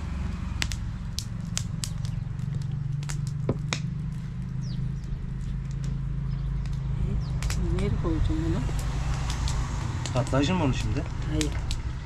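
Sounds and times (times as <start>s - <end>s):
steady low drone: 0.0s - 12.0s
wood fire crackling: 0.0s - 12.0s
sharp pops: 8.7s - 11.9s.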